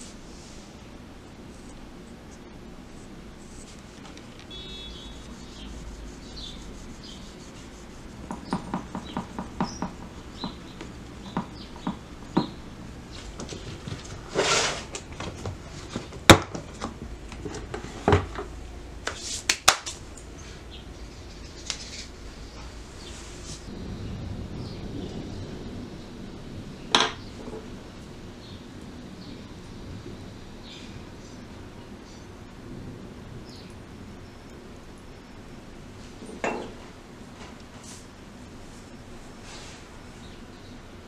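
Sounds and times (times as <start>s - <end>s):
rustling scrape: 0.0s - 0.8s, 2.8s - 9.2s, 13.2s - 16.1s, 17.4s - 18.4s, 19.1s - 20.0s, 21.1s - 23.7s, 36.8s - 40.0s
carving tool rubbing on clay: 2.9s - 12.1s.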